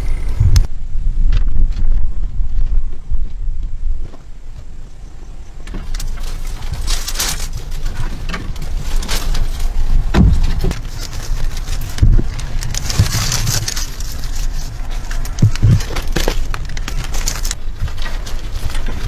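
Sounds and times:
low rumble: 0:00.0 - 0:19.0
bamboo sticks rustling and knocking: 0:05.6 - 0:19.0.

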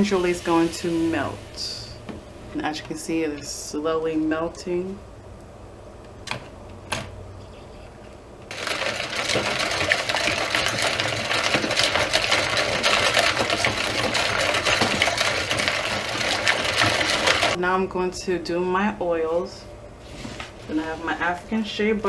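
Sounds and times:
whisk rattling ice cubes in bowl: 0:08.5 - 0:17.6.

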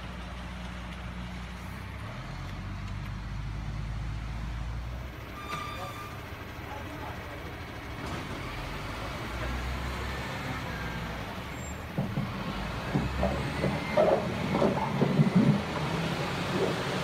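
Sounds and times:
heavy machinery diesel engine: 0:00.0 - 0:17.0
rocks clanking and scraping: 0:12.0 - 0:17.0.

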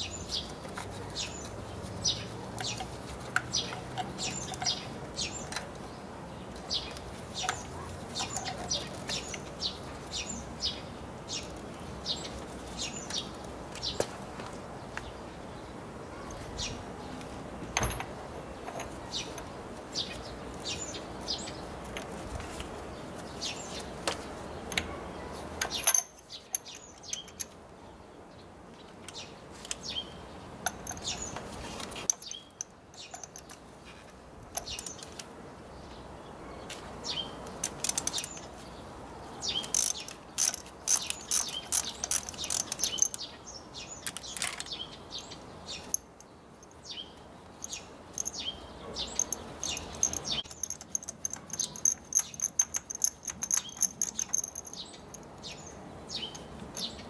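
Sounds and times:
ratchet wrench clicking: 0:39.6 - 0:43.3, 0:49.2 - 0:55.2
tools knocking: 0:49.2 - 0:55.2.

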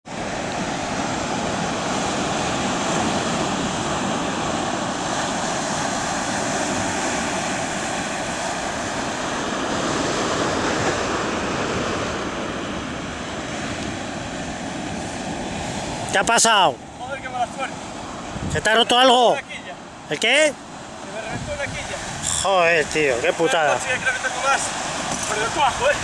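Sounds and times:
surf breaking on a beach: 0:00.0 - 0:26.0
wind buffeting microphone: 0:17.1 - 0:18.9, 0:20.8 - 0:26.0.

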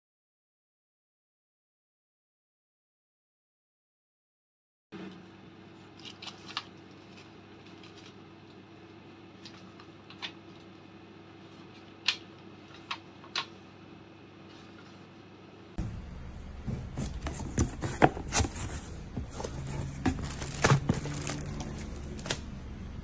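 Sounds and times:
air fryer fan hum: 0:05.0 - 0:23.0.

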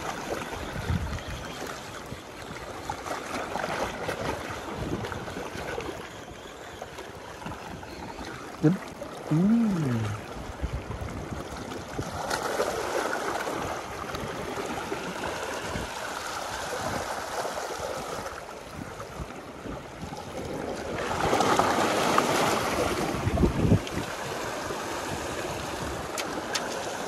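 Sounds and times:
sea waves washing onto beach: 0:07.4 - 0:27.0.

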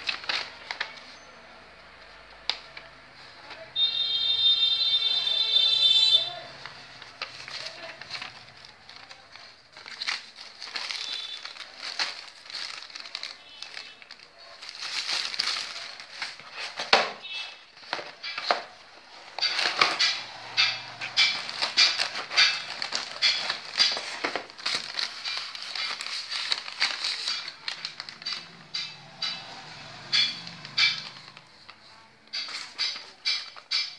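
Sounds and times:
packaging crinkling and rustling: 0:00.0 - 0:33.9
sharp crackles: 0:06.4 - 0:16.9, 0:19.4 - 0:33.9.

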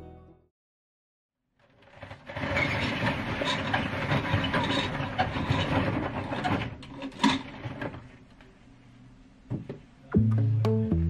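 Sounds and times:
window blind rattling and rustling: 0:01.6 - 0:08.2.

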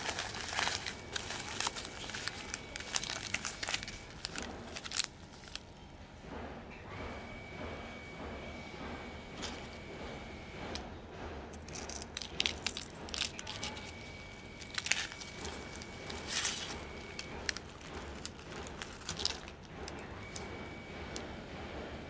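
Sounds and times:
fried coating crackling: 0:00.0 - 0:05.7, 0:11.6 - 0:20.5
paper wrapper crinkling: 0:00.0 - 0:05.7, 0:11.6 - 0:20.6.

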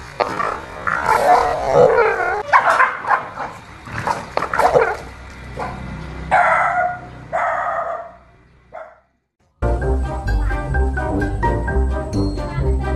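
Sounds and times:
dog barking and yipping: 0:01.0 - 0:03.6, 0:04.5 - 0:08.2, 0:08.8 - 0:09.0.

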